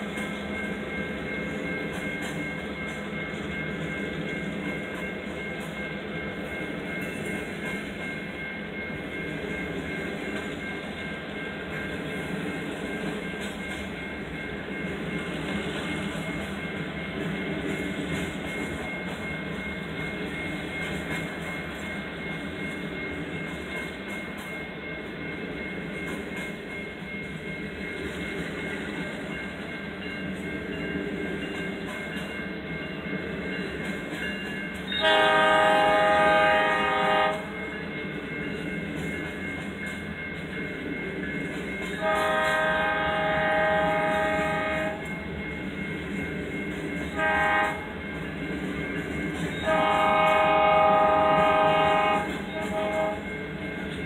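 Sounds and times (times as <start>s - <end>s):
train cars rumbling on rails: 0.0s - 54.0s
locomotive air horn blast: 35.0s - 37.4s, 42.0s - 45.0s, 47.2s - 47.8s, 49.6s - 53.2s.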